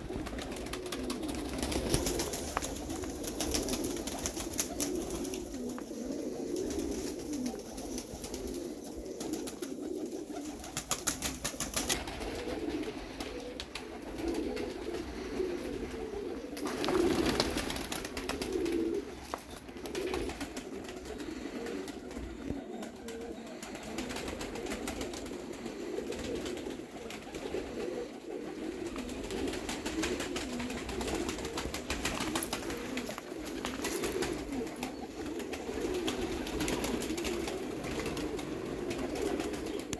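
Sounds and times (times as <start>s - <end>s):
pigeons cooing: 0.0s - 39.9s.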